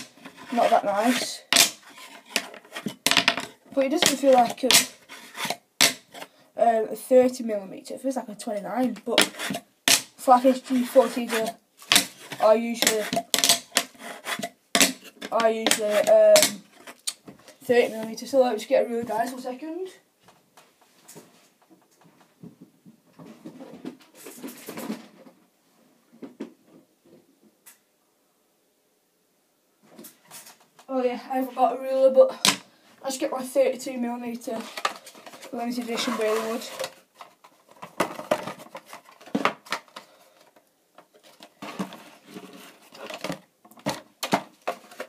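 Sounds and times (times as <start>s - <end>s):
rustling: 0.0s - 6.4s, 34.4s - 45.0s.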